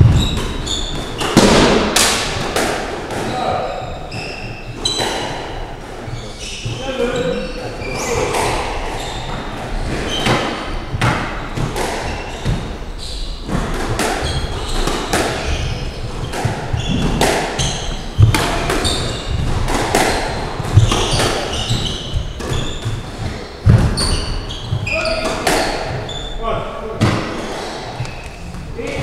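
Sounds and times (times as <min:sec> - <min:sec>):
squash ball knocks: 0:00.0 - 0:03.6, 0:13.4 - 0:26.1.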